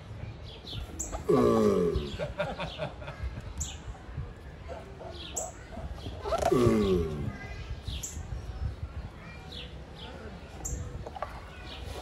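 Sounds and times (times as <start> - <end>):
birds chirping: 0.2 - 12.0
tortoise groaning: 1.1 - 2.4, 5.4 - 7.4.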